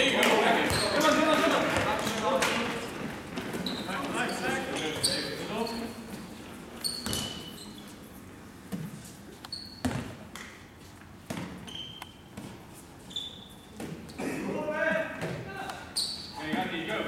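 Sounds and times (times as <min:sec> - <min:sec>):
ball bouncing on hall floor: 0:00.2 - 0:05.2, 0:06.0 - 0:07.6, 0:08.6 - 0:12.7, 0:13.6 - 0:14.2, 0:14.9 - 0:16.7
shoes squeaking on floor: 0:00.6 - 0:14.2, 0:15.2 - 0:16.8.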